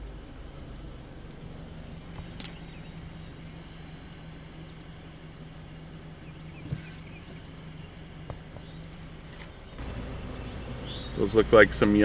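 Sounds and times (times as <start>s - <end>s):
car engine idling: 0.0s - 12.0s
sharp click: 2.2s - 2.6s.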